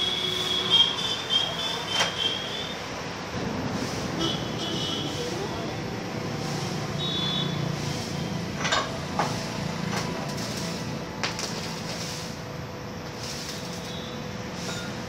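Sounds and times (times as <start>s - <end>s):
welding arc cracks: 0.0s - 2.7s, 6.3s - 15.0s
steady hum: 0.0s - 15.0s.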